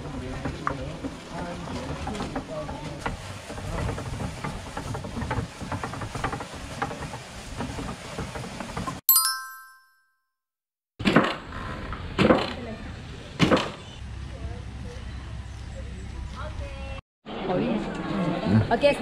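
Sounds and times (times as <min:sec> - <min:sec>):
wooden cart rattling: 0:00.2 - 0:09.0
bright chime: 0:09.1 - 0:10.0.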